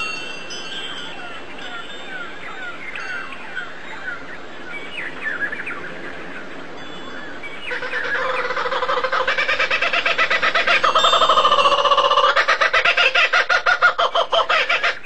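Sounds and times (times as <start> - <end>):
rapid pulsing call: 7.6 - 15.0.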